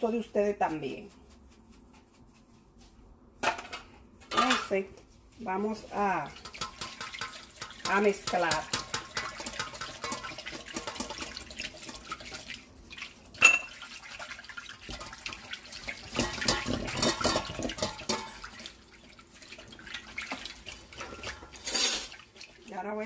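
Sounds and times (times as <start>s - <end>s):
whisk beating in a metal bowl: 5.5s - 23.0s
whisk clinking against bowl: 6.2s - 12.6s, 14.9s - 18.7s.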